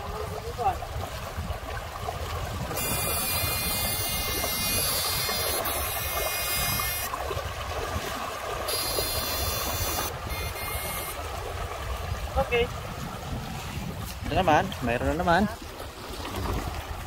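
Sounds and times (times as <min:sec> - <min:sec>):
water rushing over rocks: 0:00.0 - 0:17.0
high buzzy whine: 0:02.7 - 0:07.2, 0:08.7 - 0:11.2.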